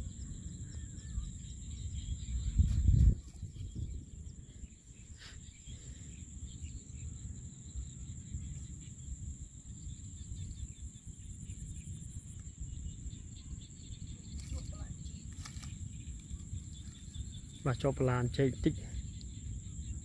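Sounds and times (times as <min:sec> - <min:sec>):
insects trilling: 0:00.0 - 0:20.0.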